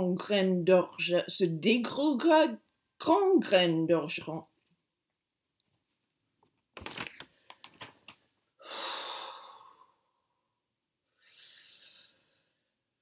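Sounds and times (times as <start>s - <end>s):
woman breathing: 8.6s - 12.9s.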